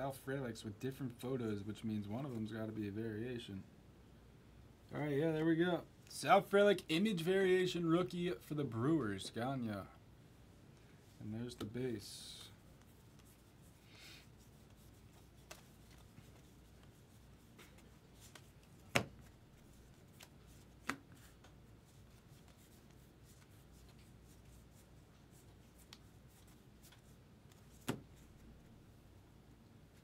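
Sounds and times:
cards rustling: 11.5s - 28.8s.

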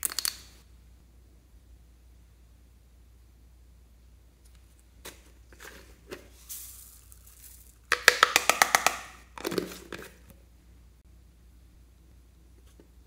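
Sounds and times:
plastic cup rustling: 5.0s - 10.3s.

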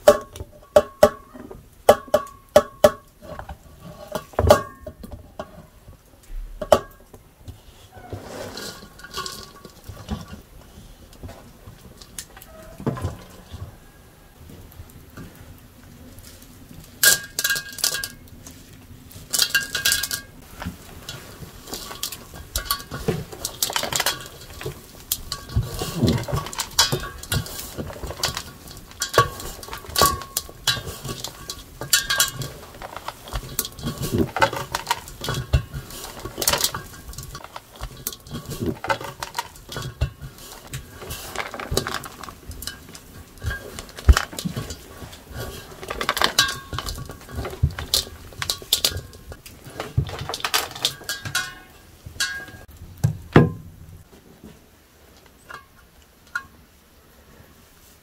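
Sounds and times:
hands kneading crumbly mixture: 20.3s - 51.1s
knocks and scrapes on enamel basin: 20.6s - 52.6s.

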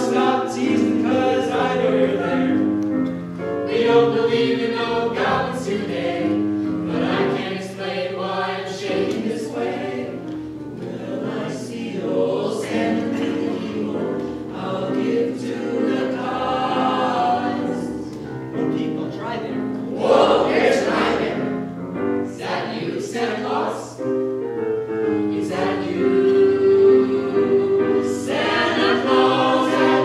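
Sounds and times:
group singing in harmony: 0.0s - 18.2s, 19.8s - 24.2s, 25.0s - 30.0s.

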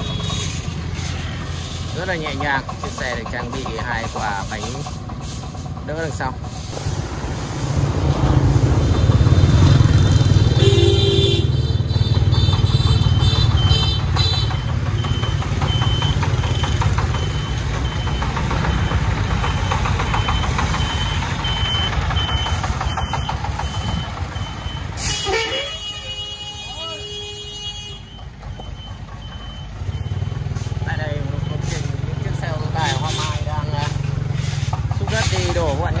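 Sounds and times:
diesel truck engine rumbling: 0.0s - 36.0s
horn honk: 10.4s - 14.5s, 25.0s - 28.1s
high electronic beeps: 14.5s - 24.9s, 28.0s - 31.9s.

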